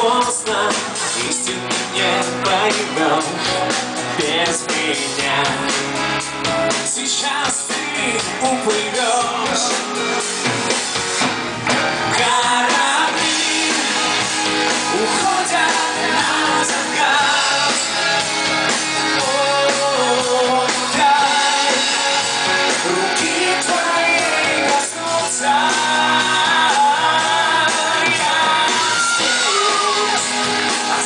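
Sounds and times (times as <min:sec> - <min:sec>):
lead singer singing: 0:00.0 - 0:10.5, 0:11.6 - 0:31.0
drums: 0:00.0 - 0:31.0
electric guitar: 0:00.0 - 0:31.0
keyboards: 0:00.0 - 0:31.0.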